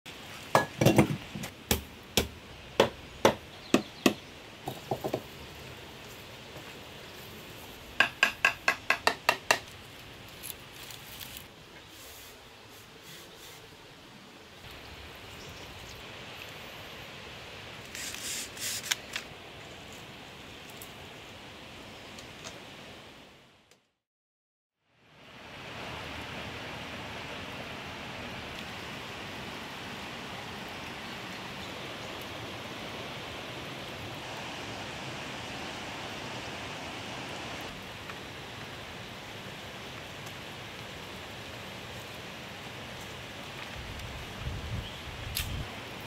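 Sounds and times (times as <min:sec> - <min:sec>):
steady background hiss: 0:00.1 - 0:23.7, 0:24.9 - 0:46.0
stones and bamboo knocking: 0:00.5 - 0:05.3, 0:08.0 - 0:09.7.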